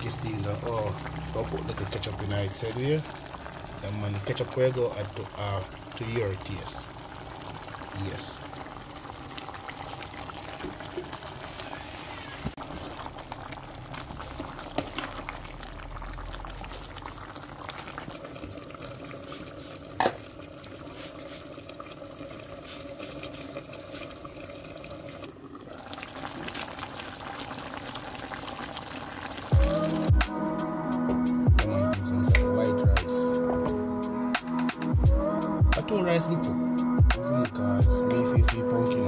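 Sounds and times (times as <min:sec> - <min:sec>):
food bubbling in a pot: 0:00.0 - 0:33.1
music: 0:29.6 - 0:39.0.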